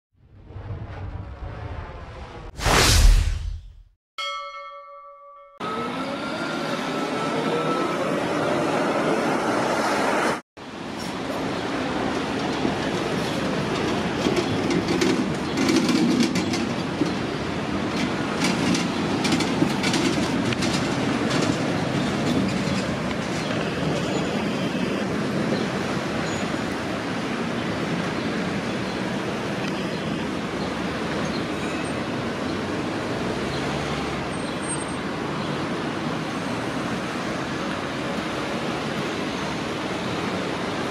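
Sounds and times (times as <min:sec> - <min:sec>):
tram wheels rumbling on rails: 0:05.7 - 0:34.3, 0:35.0 - 0:40.9
sharp clicks over rail joints: 0:13.8 - 0:17.2, 0:17.9 - 0:23.6.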